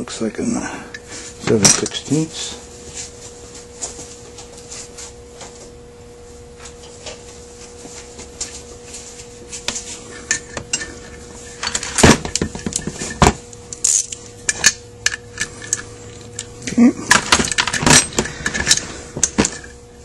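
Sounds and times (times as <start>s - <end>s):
metal parts and tools clinking: 13.8s - 15.8s, 17.1s - 19.7s.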